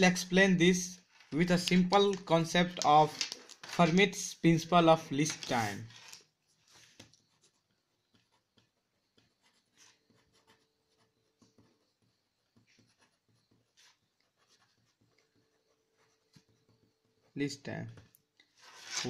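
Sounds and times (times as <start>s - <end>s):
pen scratching on paper: 6.8s - 17.3s.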